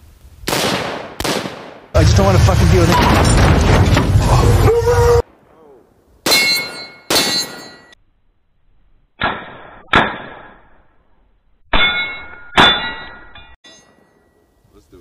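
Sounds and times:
bullets clanging on steel target: 0:06.3 - 0:08.0, 0:11.7 - 0:14.2.

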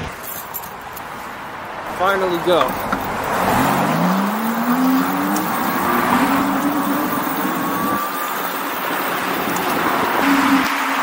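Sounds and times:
wind and road noise: 0:00.0 - 0:11.0
electric hub motor whining: 0:02.9 - 0:11.0.

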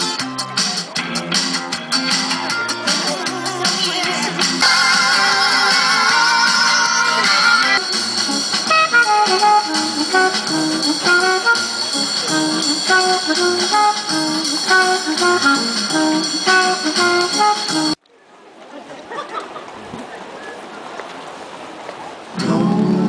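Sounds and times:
jazz saxophone music: 0:04.5 - 0:18.0.

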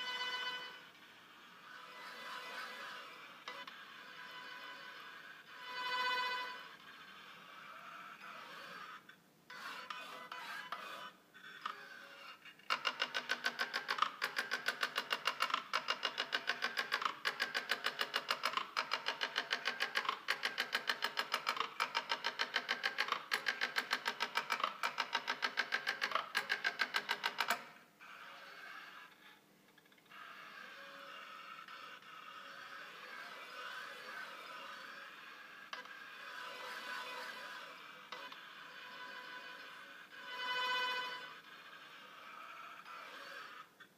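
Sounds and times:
positioning table ticking: 0:12.6 - 0:27.8.

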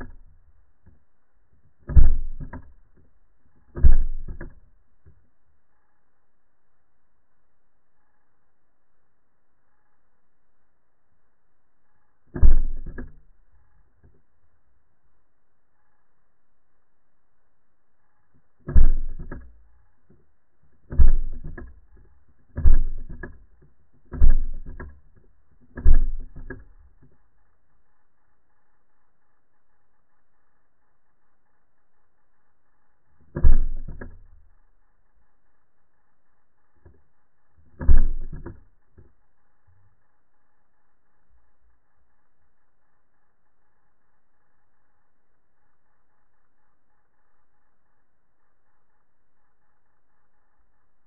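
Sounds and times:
underwater air pistol thumps: 0:01.8 - 0:02.8, 0:03.7 - 0:04.6.

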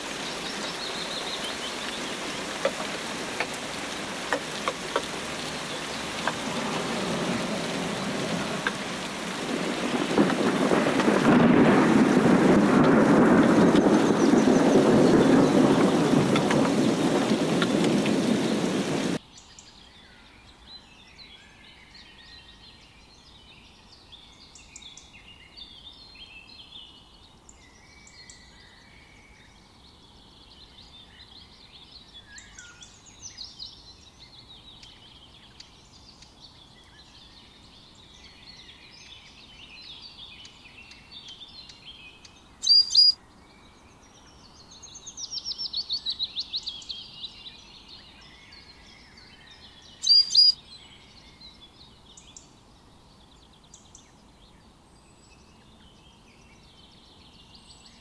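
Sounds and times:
birds calling and twittering: 0:00.0 - 0:11.5, 0:13.3 - 0:58.0
loud sharp bird calls: 0:42.6 - 0:43.2, 0:49.9 - 0:50.6
rapid bird trill: 0:42.6 - 0:43.2, 0:50.0 - 0:50.6.

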